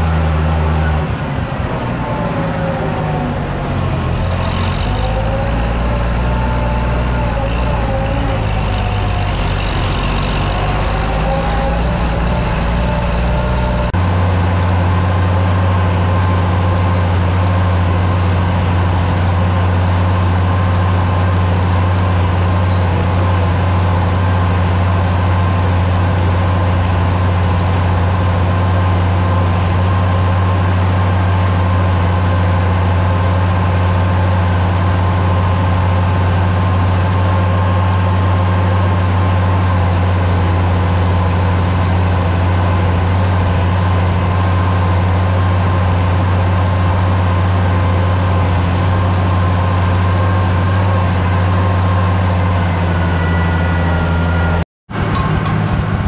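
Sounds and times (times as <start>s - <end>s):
steady whine: 0.0s - 14.0s
tractor engine running: 0.0s - 56.0s.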